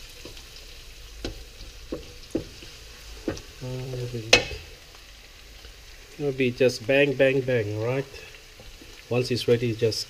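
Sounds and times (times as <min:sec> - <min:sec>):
onion and garlic sizzling in oil: 0:00.0 - 0:10.0
wooden spatula knocking on wok: 0:01.2 - 0:04.7.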